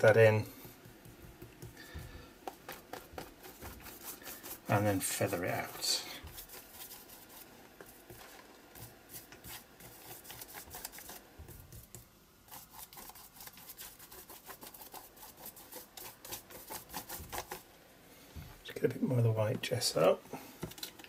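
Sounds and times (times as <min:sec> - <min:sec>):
paintbrush scratching on paper: 0:02.4 - 0:17.6.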